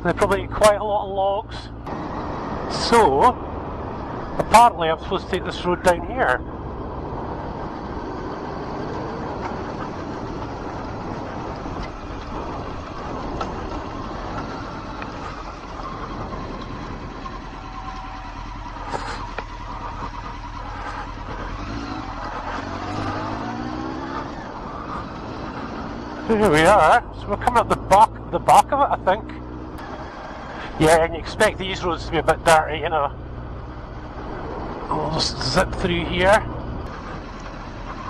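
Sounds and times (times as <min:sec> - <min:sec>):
wind noise on microphone: 0:06.4 - 0:17.7
motorcycle engine running: 0:06.4 - 0:28.4.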